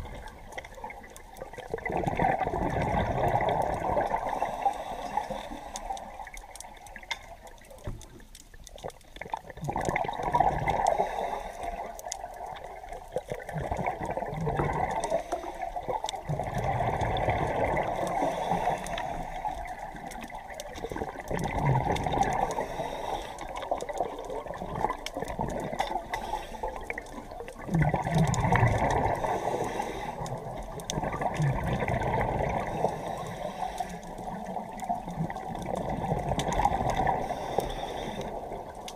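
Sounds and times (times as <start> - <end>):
steady watery hiss: 0.0 - 38.9
regulator bubbling exhalation: 1.6 - 6.2, 13.4 - 38.9.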